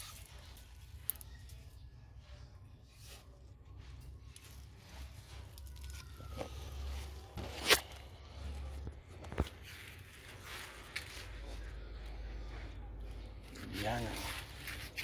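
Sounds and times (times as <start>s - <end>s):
machete splitting tree trunk: 7.4s - 8.0s.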